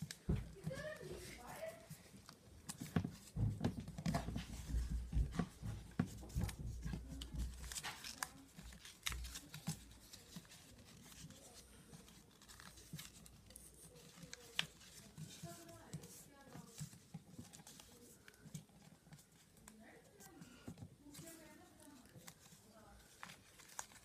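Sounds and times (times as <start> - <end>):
paper rustling and crinkling: 0.0 - 24.0
soft bumps on a tabletop: 2.7 - 7.9.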